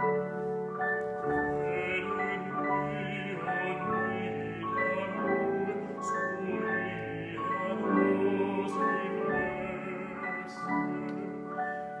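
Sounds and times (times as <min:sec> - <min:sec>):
grand piano: 0:00.0 - 0:12.0
operatic singing: 0:01.4 - 0:12.0.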